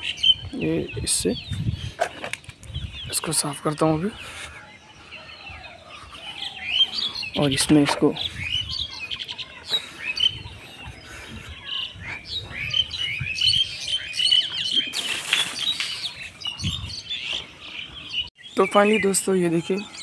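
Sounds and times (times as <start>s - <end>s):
birds chirping: 0.0s - 20.0s
rustling: 14.9s - 16.4s.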